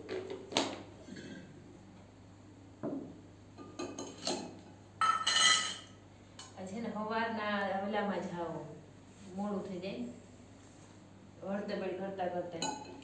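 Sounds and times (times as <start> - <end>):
metal dishes clinking: 3.6 - 6.6.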